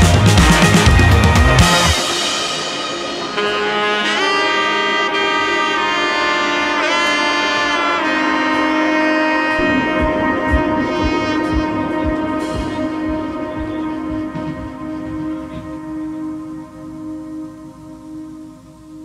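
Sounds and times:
drum-heavy music: 0.0 - 4.4, 9.6 - 16.4
melody of long held notes: 0.0 - 19.0.

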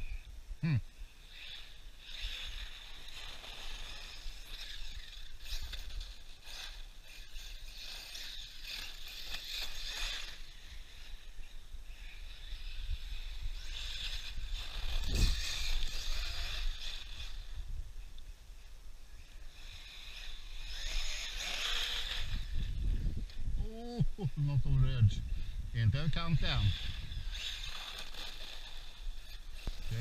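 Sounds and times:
rc car motor whine: 0.0 - 30.0
wind rumble on microphone: 10.5 - 27.8.

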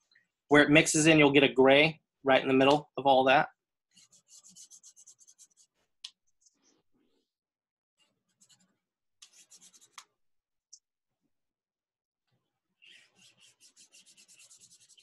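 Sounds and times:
chalk scratching on paper: 3.9 - 6.8, 8.1 - 10.1, 12.8 - 15.0.

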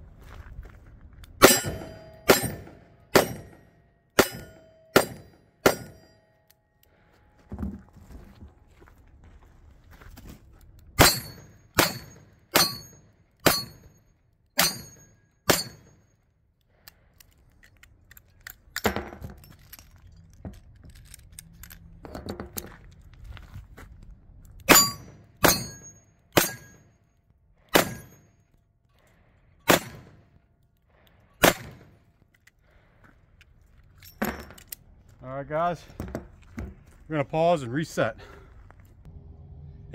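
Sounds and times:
steel target ringing: 1.4 - 6.4, 11.0 - 16.0, 24.7 - 26.9, 27.8 - 28.3
metal clicks and clinks: 16.7 - 22.8, 33.4 - 34.8.

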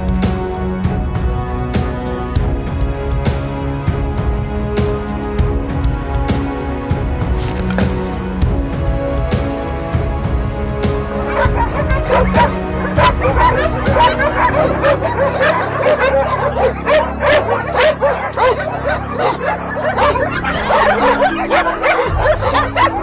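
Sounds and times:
background music: 0.0 - 23.0
many dogs barking: 11.0 - 23.0.

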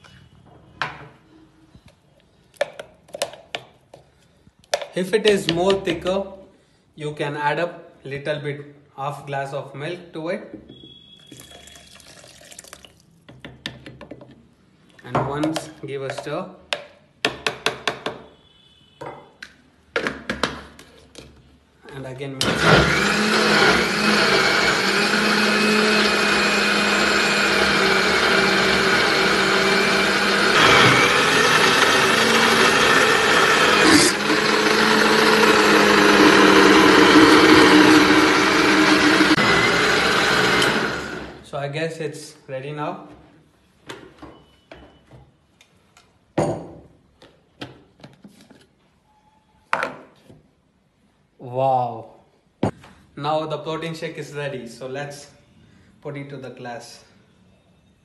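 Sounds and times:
blender motor running: 22.4 - 41.4.

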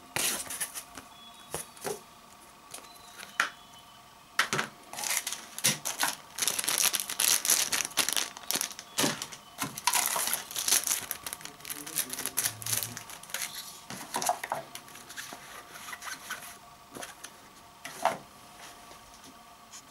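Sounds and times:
plastic bags crinkling: 5.0 - 15.2
paper leaflets rustling: 5.0 - 15.4.

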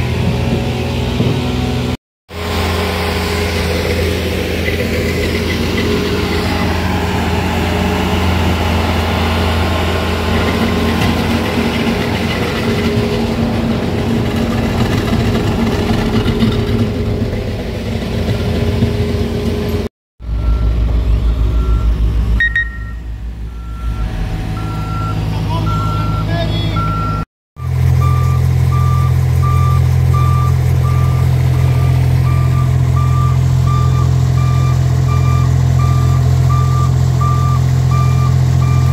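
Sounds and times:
diesel engine throbbing: 0.0 - 38.9
skid steer engine running: 0.0 - 38.9
back-up alarm beeping: 20.3 - 38.9.

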